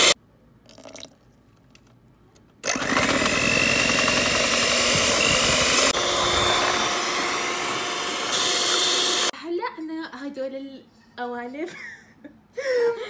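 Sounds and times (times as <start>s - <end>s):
electric mixer beating batter: 2.6s - 9.3s
thin high motor whine: 2.7s - 9.3s.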